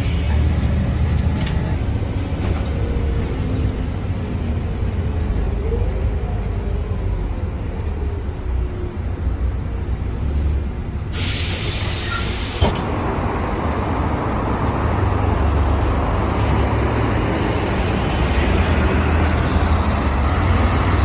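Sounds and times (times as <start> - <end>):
bus engine running: 0.0 - 21.0
compressed air hiss: 11.1 - 12.9.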